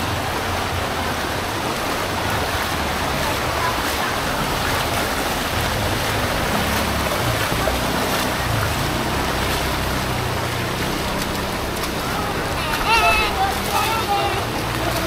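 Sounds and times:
floodwater rushing over street: 0:00.0 - 0:15.0
motorcycle engines: 0:00.0 - 0:15.0.

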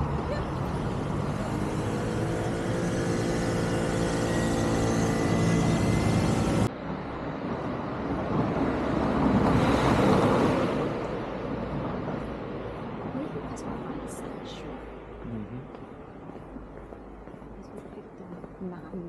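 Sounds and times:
vehicle passing by: 0:00.0 - 0:06.8, 0:07.5 - 0:13.1
vehicle engine hum: 0:00.0 - 0:17.8.

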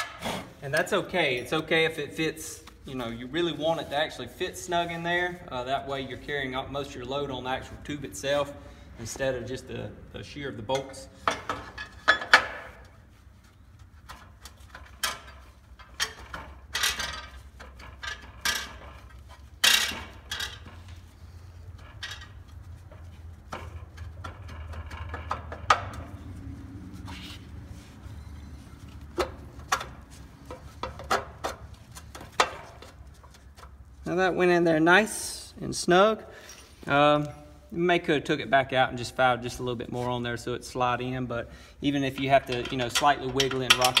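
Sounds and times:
metallic knocks and scrapes: 0:10.7 - 0:13.1, 0:13.8 - 0:33.9, 0:42.1 - 0:44.0.

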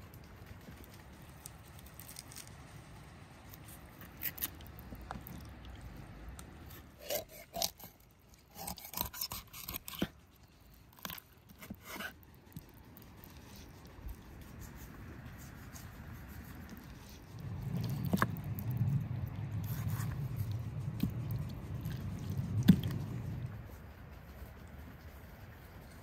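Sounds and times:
knife cutting raw chicken: 0:06.7 - 0:10.2.

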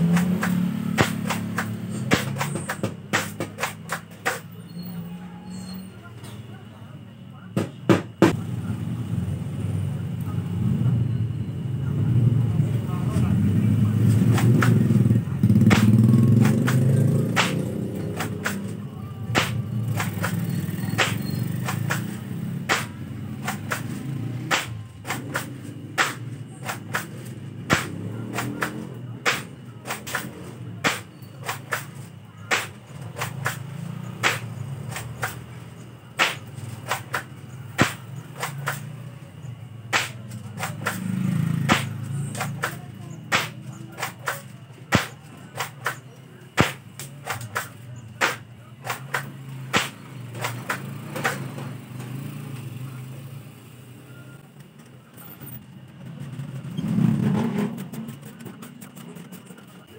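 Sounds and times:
airsoft shotgun clacks and snaps: 0:00.0 - 0:04.5, 0:14.3 - 0:14.8, 0:15.6 - 0:18.7, 0:19.4 - 0:35.5, 0:36.2 - 0:38.9, 0:39.9 - 0:51.4.

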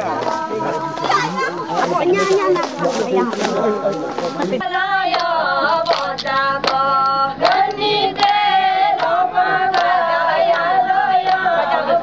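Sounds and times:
women singing together: 0:00.0 - 0:12.0
hand claps: 0:02.2 - 0:04.3, 0:05.1 - 0:08.4, 0:09.0 - 0:10.6, 0:11.2 - 0:11.4.

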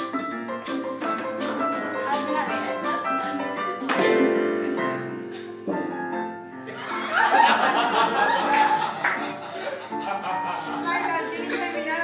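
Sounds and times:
piano chords ringing: 0:00.0 - 0:12.0
women giggling and laughing: 0:06.7 - 0:12.0.

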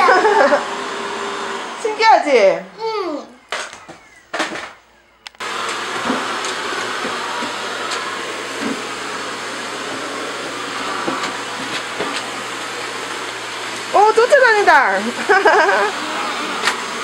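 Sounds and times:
vacuum cleaner running: 0:00.0 - 0:02.7, 0:05.4 - 0:17.0
vacuum nozzle and hose knocks: 0:06.0 - 0:08.9.

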